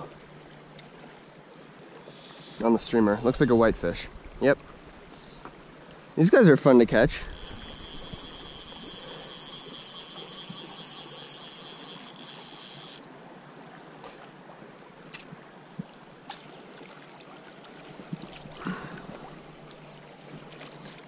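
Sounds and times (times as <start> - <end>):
river water flowing: 0.0 - 21.0
high steady buzz: 6.9 - 13.0.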